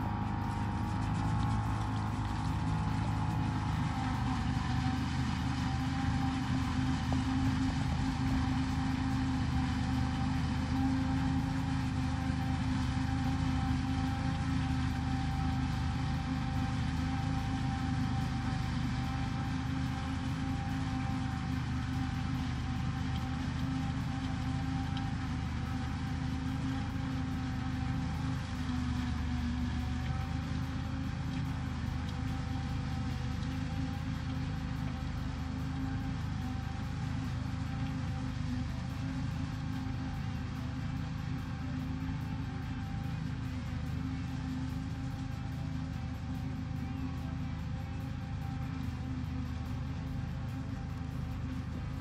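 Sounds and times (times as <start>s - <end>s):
tractor and forage harvester drone: 0.0s - 52.0s.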